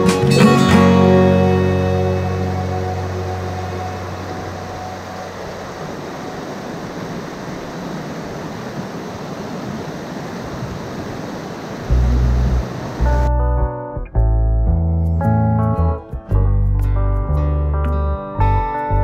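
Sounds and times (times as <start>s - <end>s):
background music: 0.0s - 6.0s, 13.0s - 19.0s
stream rushing over rocks: 0.0s - 13.3s.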